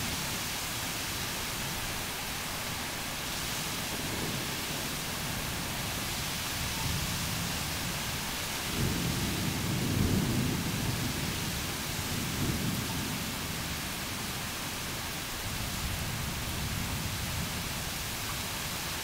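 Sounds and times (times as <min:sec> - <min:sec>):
heavy rain hissing: 0:00.0 - 0:19.0
low thunder rumble: 0:03.8 - 0:14.0.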